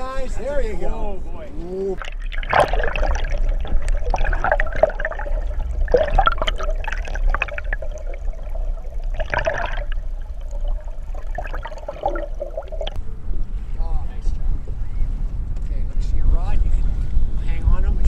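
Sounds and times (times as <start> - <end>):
low steady rumble: 0.0 - 18.0
water rushing and gurgling: 2.0 - 13.0.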